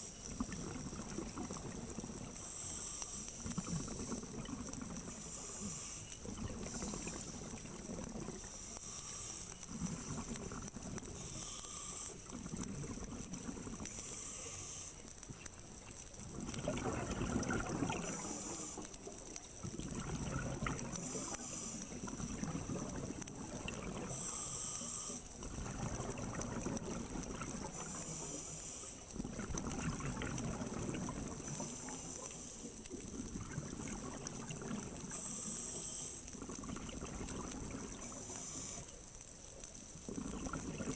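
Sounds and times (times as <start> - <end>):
regulator hissing inhales: 5.1 - 7.4, 8.4 - 9.7, 11.2 - 12.3, 13.9 - 15.0, 18.2 - 18.9, 24.1 - 25.3
exhaled bubbles rushing: 16.2 - 18.4, 19.6 - 21.1, 22.0 - 24.2, 25.4 - 27.9, 29.2 - 31.6, 33.1 - 35.0, 36.4 - 38.1, 40.1 - 40.9.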